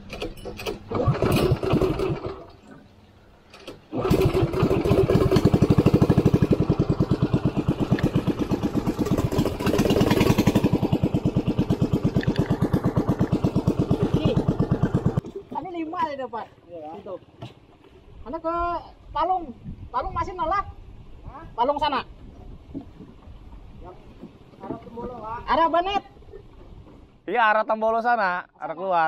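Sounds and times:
boat engine chugging: 3.8 - 17.8.

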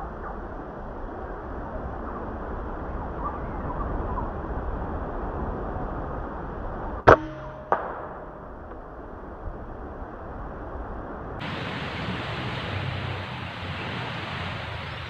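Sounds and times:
outdoor background noise: 0.0 - 15.0
air rifle shot: 7.1 - 8.8.

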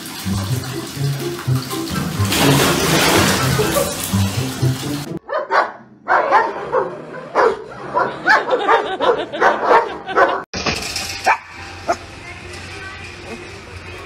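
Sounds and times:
large dog barking rapidly: 5.3 - 10.4.

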